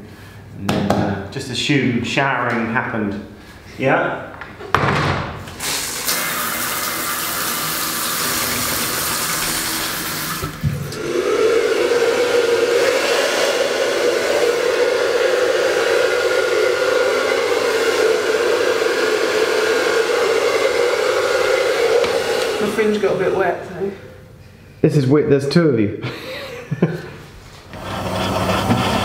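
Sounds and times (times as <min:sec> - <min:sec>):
shower spraying water: 0:05.6 - 0:10.6
hair dryer blowing: 0:05.6 - 0:23.7, 0:27.7 - 0:29.0.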